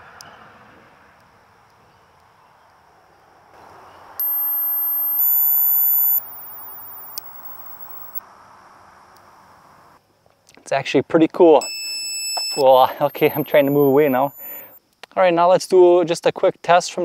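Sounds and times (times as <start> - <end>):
high-pitched stepping tone: 4.2 - 8.2, 12.5 - 14.6.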